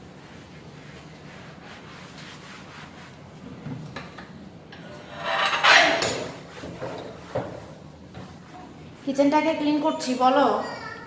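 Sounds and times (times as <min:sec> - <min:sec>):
sponge scrubbing counter panel: 0:00.0 - 0:03.7, 0:05.1 - 0:09.1.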